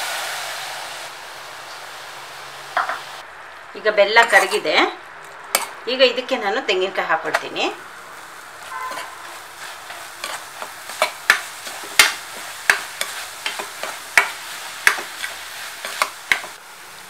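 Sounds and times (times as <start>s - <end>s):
syrup bubbling and sizzling: 0.0s - 5.8s, 7.8s - 17.0s
spatula scraping pan: 4.2s - 4.8s, 5.5s - 5.8s, 8.6s - 16.6s.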